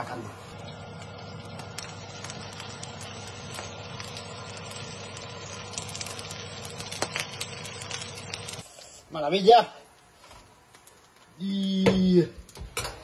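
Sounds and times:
ribs sizzling and crackling: 0.0 - 12.2.

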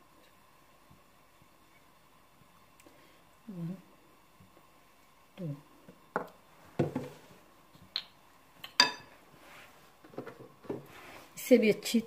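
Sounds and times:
spoon clinking on glass: 8.7 - 9.1.

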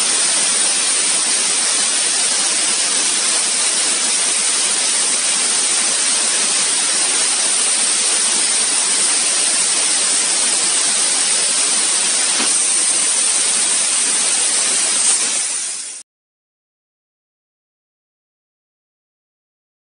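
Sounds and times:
machine fans: 0.0 - 15.6
air nozzle hissing: 0.0 - 16.0.

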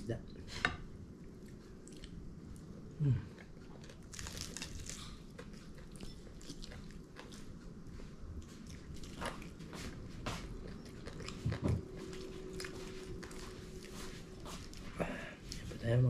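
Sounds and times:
biting and crunching food: 3.5 - 7.6.

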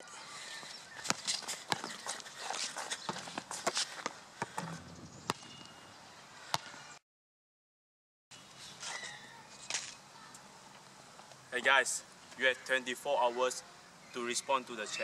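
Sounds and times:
basketball bouncing on court: 4.4 - 5.7
light outdoor hiss: 8.4 - 14.8.

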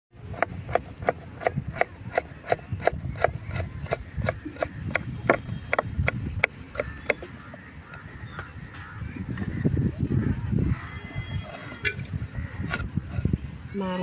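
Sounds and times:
knife chopping on wooden board: 0.3 - 7.3.

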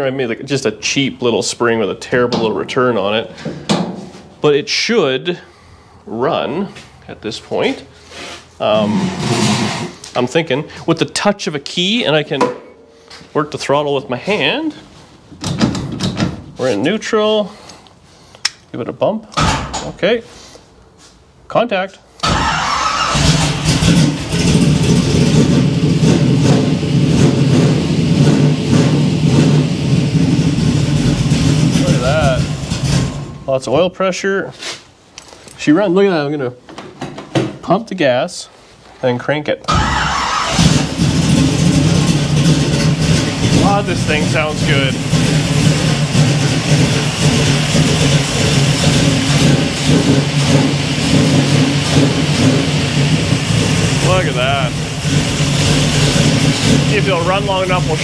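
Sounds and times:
car engine starting and running: 22.2 - 33.5, 39.7 - 58.0.

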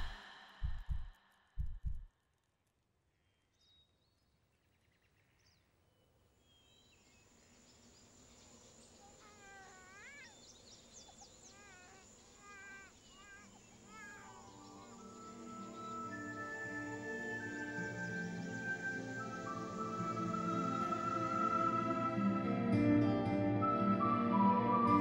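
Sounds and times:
high insect-like tone: 7.7 - 20.7
short chirping animal calls: 8.9 - 17.5.

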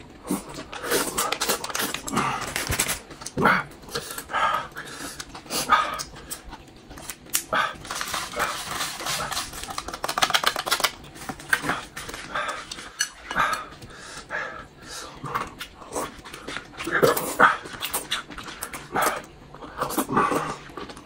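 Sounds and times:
chewing and slurping: 15.0 - 21.0.

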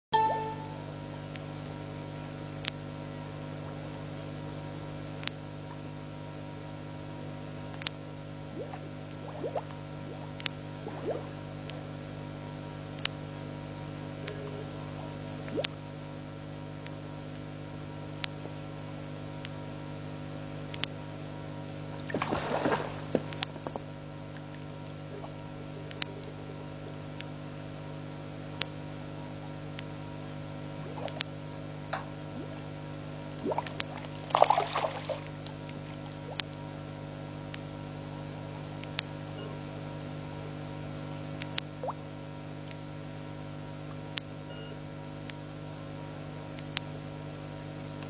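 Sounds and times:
sharp click: 0.2 - 0.9
low electrical hum: 0.2 - 48.0
high insect chirps: 28.7 - 29.4, 33.8 - 35.2.

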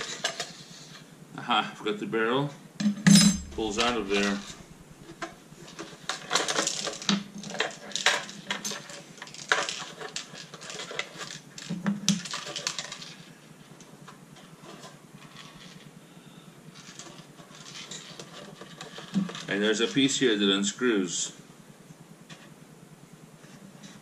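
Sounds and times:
plastic and metal parts clattering: 5.7 - 13.3, 16.8 - 19.7.

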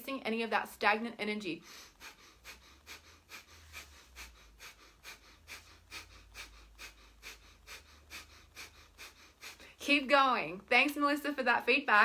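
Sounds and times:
rapid nasal breathing: 1.6 - 9.8.

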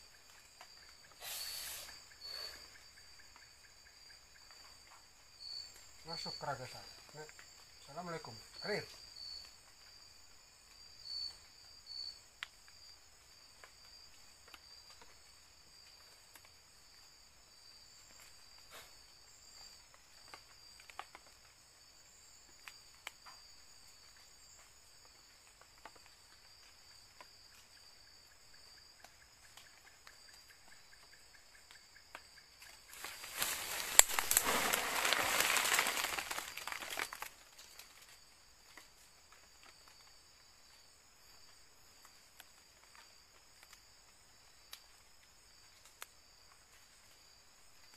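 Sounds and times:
high insect chorus: 0.0 - 47.9
rustles and snaps in undergrowth: 32.2 - 39.8
loud rustling of leaves and branches: 32.6 - 39.9.

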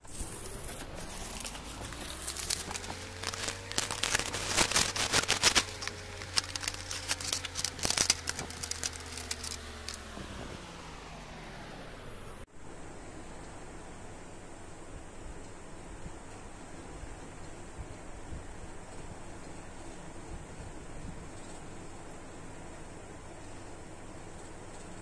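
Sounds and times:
plastic packaging crinkling: 0.0 - 10.6
low steady hum: 0.0 - 25.0.

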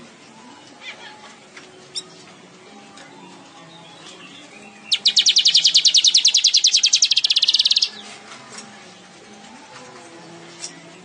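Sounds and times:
bird trilling: 4.8 - 8.0.

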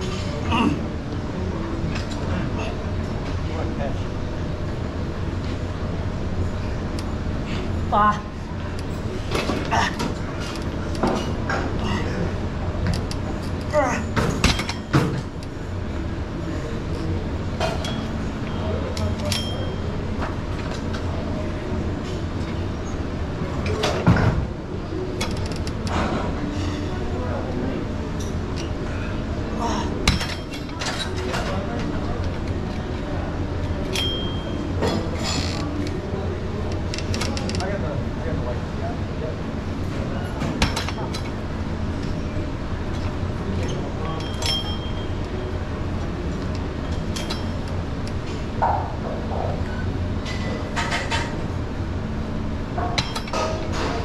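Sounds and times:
steady low hum: 0.0 - 54.0.

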